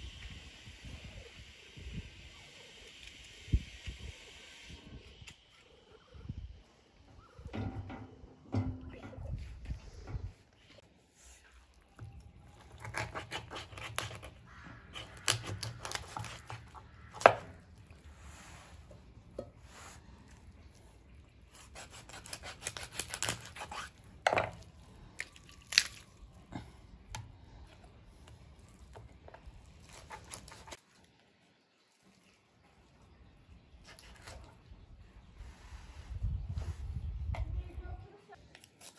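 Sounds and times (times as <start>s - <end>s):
knife tearing through chicken skin: 12.6s - 17.7s, 21.4s - 26.3s, 29.8s - 30.8s, 38.6s - 38.9s.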